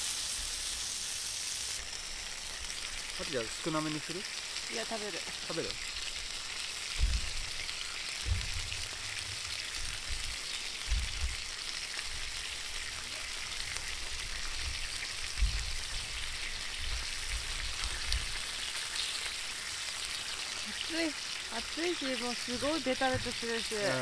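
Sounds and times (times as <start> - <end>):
food sizzling on hot plate: 0.0 - 24.0
dull low thumps: 6.9 - 11.6, 14.6 - 18.3.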